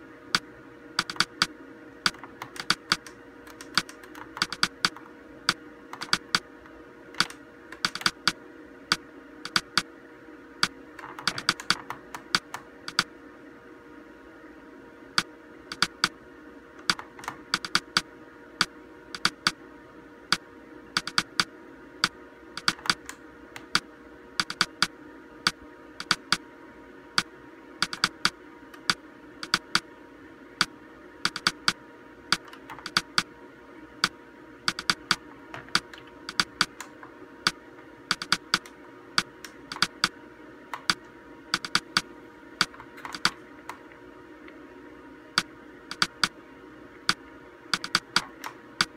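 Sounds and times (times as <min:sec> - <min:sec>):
faint steady hum: 0:00.0 - 0:48.9
monitor buttons clicking: 0:01.0 - 0:01.5, 0:02.1 - 0:05.0, 0:05.9 - 0:06.4, 0:07.2 - 0:09.9, 0:10.6 - 0:13.1, 0:16.8 - 0:18.0, 0:21.0 - 0:23.8, 0:24.4 - 0:24.9, 0:26.0 - 0:26.4, 0:27.8 - 0:29.8, 0:31.3 - 0:33.3, 0:34.0 - 0:40.1, 0:40.7 - 0:43.8, 0:45.4 - 0:46.3, 0:47.8 - 0:48.9.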